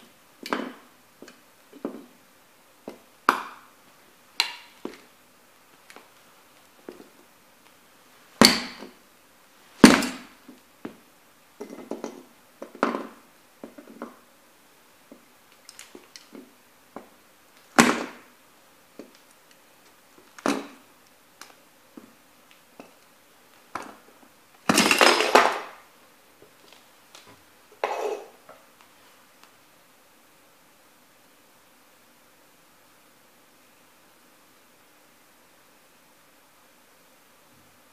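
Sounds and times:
sneakers crushing plastic toy: 24.6 - 25.8.

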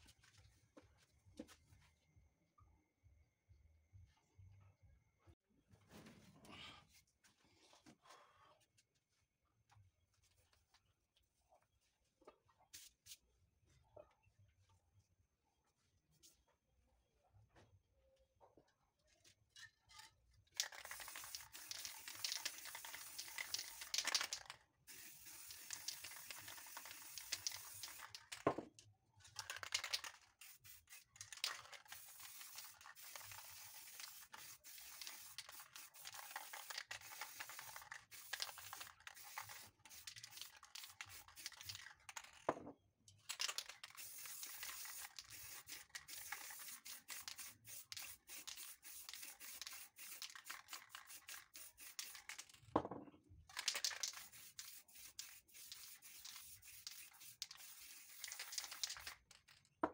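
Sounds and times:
spray paint can hissing: 20.6 - 28.4, 29.4 - 42.2, 43.3 - 52.6, 53.5 - 59.4.

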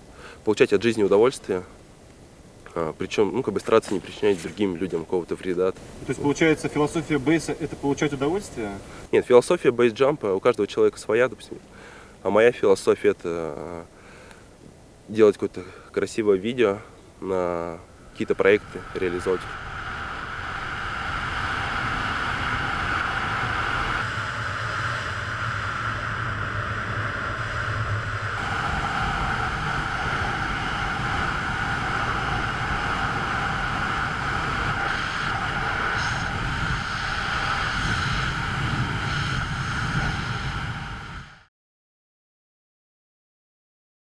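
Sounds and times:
wind rushing over camera microphone: 17.2 - 41.5.

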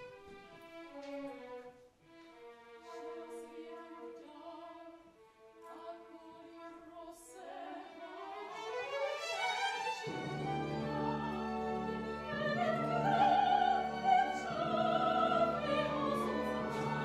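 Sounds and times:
orchestral accompaniment: 8.2 - 17.0.

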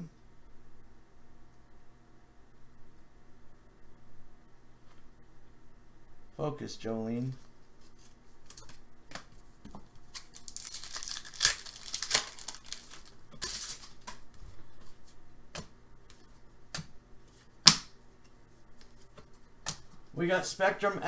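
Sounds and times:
wrapper tearing and crinkling: 10.0 - 14.3
cards clicking and tapping: 15.5 - 17.0, 18.8 - 20.0.

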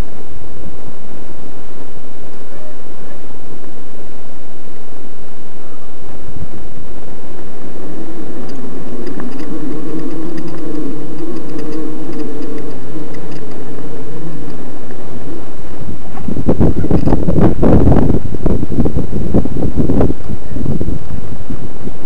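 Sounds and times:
trail rumble: 0.0 - 22.0
electric bike motor whining: 5.8 - 22.0
wind buffeting microphone: 5.9 - 22.0.

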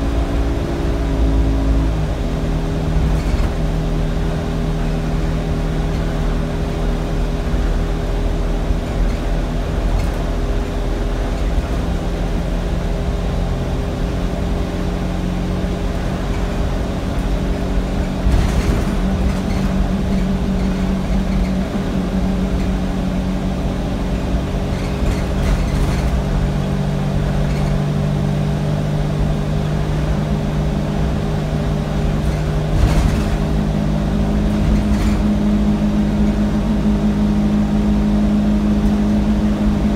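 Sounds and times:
bus diesel engine droning: 0.0 - 39.9
bodywork knocks and rattles: 16.0 - 22.9, 24.2 - 28.1, 32.1 - 35.6.

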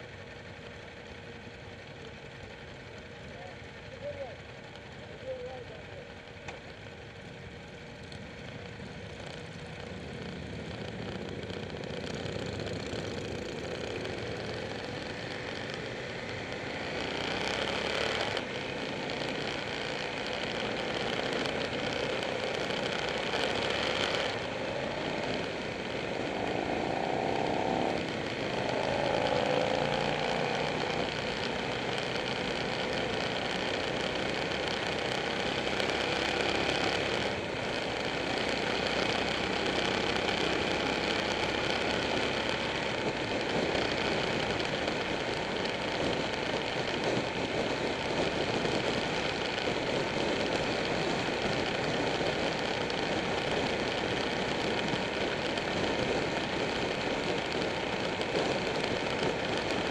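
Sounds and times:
motorcycle engines accelerating: 2.6 - 59.9.

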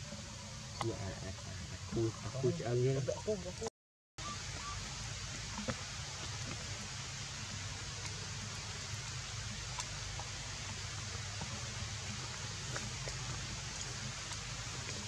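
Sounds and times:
even hiss: 0.0 - 15.0
faint ticks: 9.0 - 15.0.

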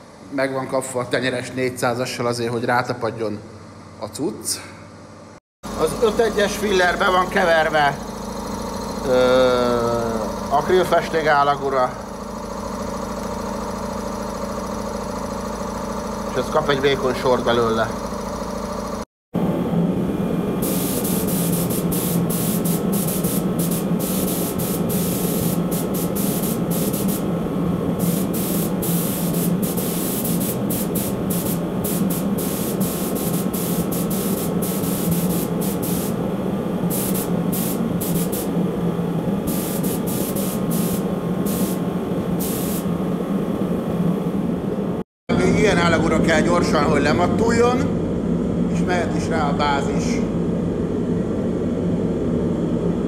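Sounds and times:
steady low hum: 0.0 - 53.0
spray gun hissing: 20.6 - 27.4, 28.0 - 38.6, 39.4 - 43.0.

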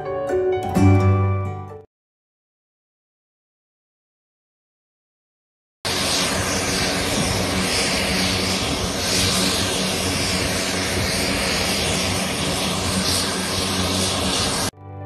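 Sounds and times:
wide hiss: 5.9 - 14.7
propeller aircraft drone: 5.9 - 14.8.

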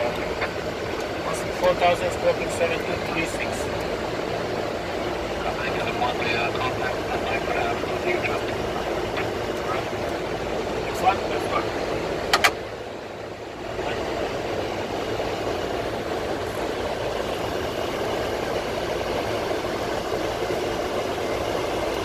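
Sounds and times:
rushing airplane cockpit noise: 0.0 - 22.0.

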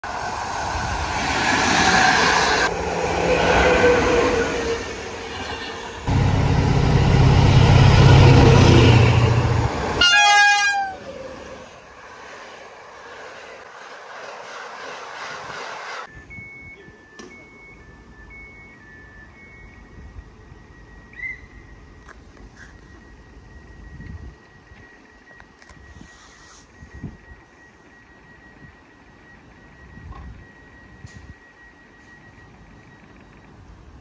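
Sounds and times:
diesel locomotive engine: 0.0 - 34.0
train rolling by: 0.0 - 34.0
train horn: 8.1 - 11.2.

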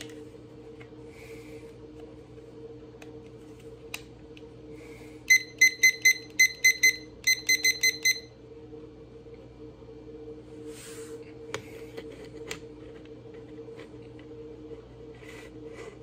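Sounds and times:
digital timer beeping: 5.3 - 8.3.

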